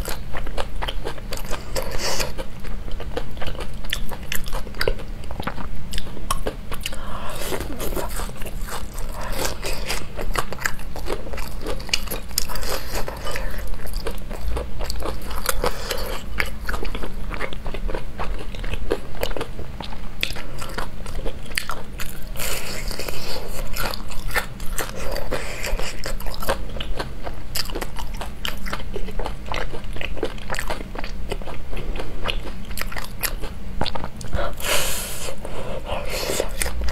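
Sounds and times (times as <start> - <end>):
crunchy chewing of fried food: 0.0 - 36.9.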